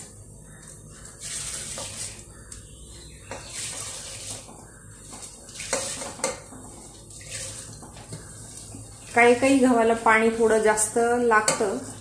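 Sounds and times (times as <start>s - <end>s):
wheat rustling and splashing: 0.9s - 2.4s, 3.4s - 10.6s.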